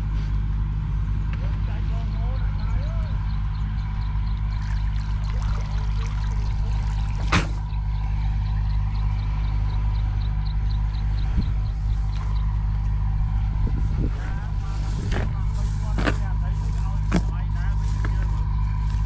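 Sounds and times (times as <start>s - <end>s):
steady low hum: 0.0s - 19.0s
water trickling off a net: 4.6s - 7.6s.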